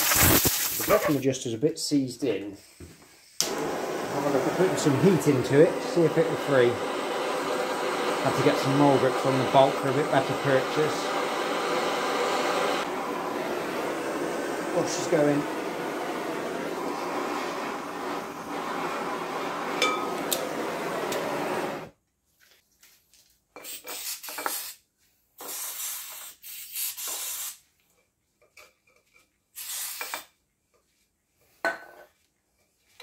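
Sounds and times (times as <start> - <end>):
blowtorch hissing: 0.0 - 1.2, 2.6 - 21.9, 29.6 - 30.2.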